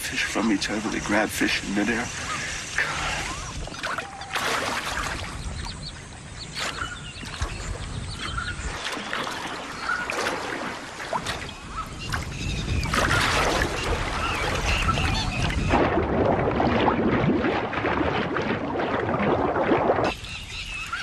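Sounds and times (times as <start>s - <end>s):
crocodiles splashing in water: 2.8s - 5.4s, 8.6s - 20.1s.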